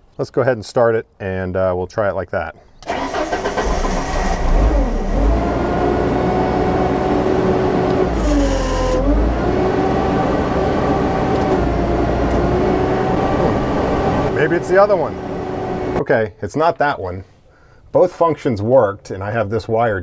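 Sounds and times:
engine running: 2.9s - 16.0s.

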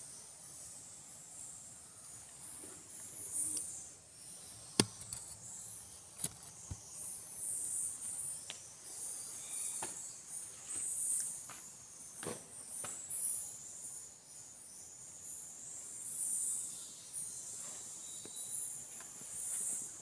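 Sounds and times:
crickets chirring: 0.0s - 20.0s
sharp clicks or knocks: 4.8s - 5.4s.

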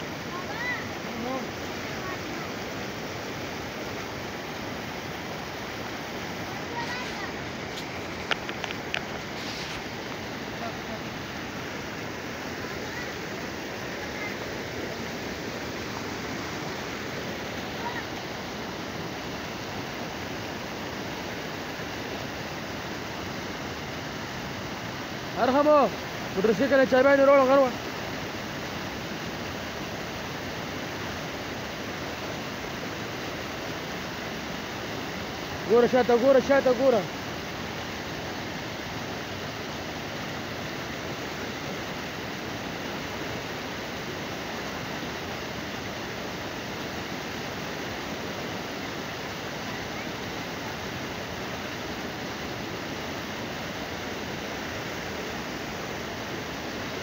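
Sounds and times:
water rushing over weir: 0.0s - 57.0s.

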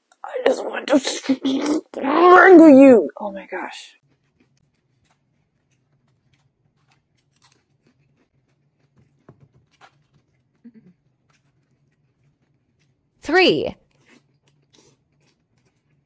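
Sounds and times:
person chewing: 4.0s - 13.2s, 13.8s - 16.0s.

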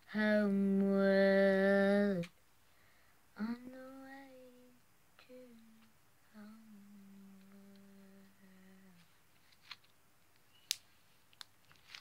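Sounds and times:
girl humming: 3.4s - 9.0s.

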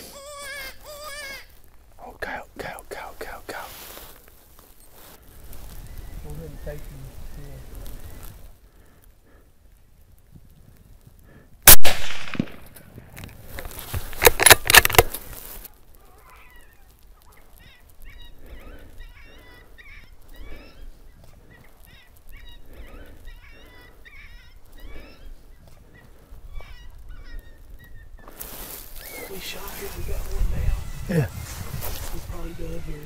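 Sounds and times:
rifle shot with echo: 11.6s - 12.8s.

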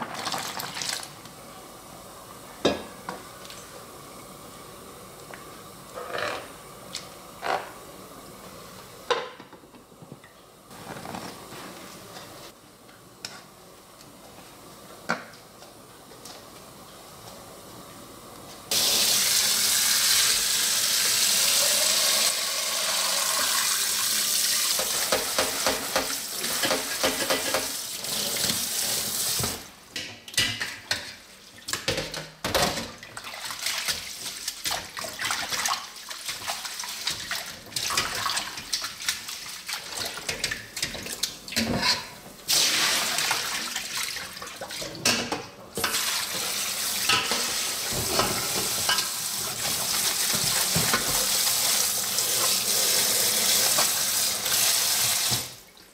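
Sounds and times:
water rushing into strainer: 42.5s - 44.9s.

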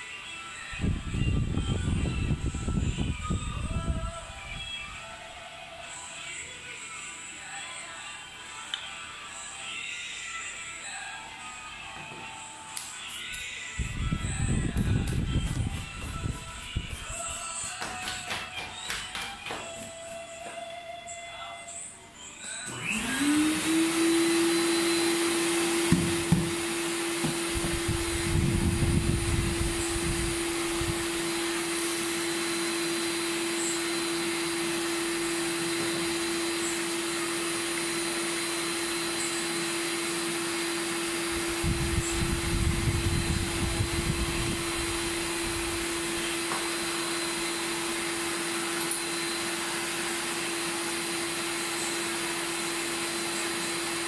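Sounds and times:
vacuum cleaner motor whine: 13.3s - 17.4s, 22.5s - 54.0s.

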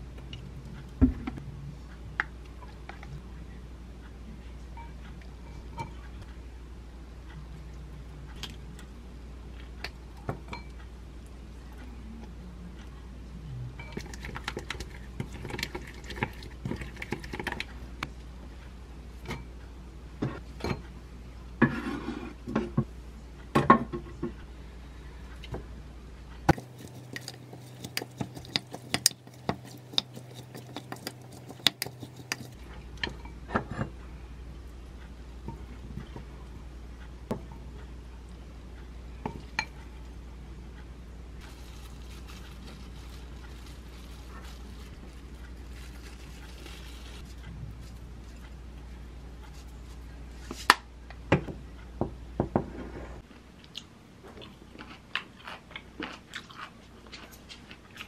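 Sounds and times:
low steady hum: 0.0s - 58.0s
wooden spoon stirring in bowl: 14.0s - 17.7s, 26.5s - 33.3s.

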